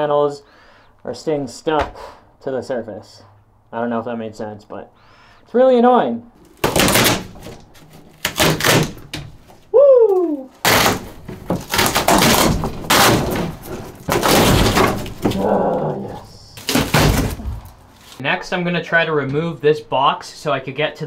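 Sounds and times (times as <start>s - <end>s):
wood paneling cracking and tearing: 6.4s - 18.2s.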